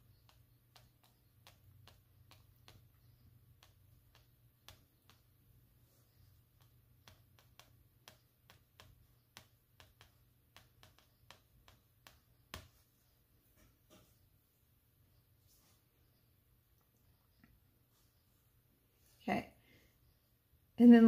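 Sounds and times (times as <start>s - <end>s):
pastel ticking on paper: 0.0s - 12.9s.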